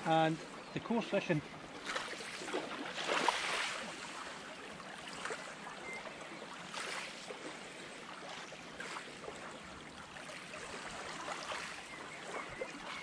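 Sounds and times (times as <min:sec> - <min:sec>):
small waves lapping at shore: 0:00.0 - 0:13.0.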